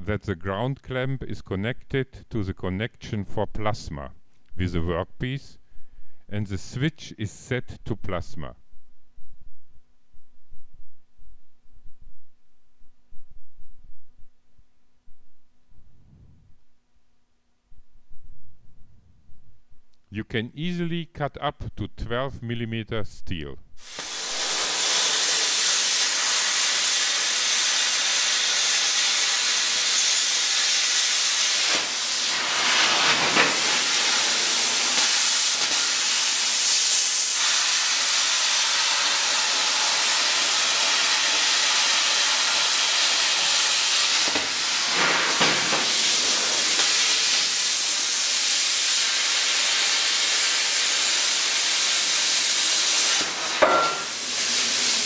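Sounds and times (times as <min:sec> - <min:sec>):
plasma cutter arc hissing: 0:23.8 - 0:55.0.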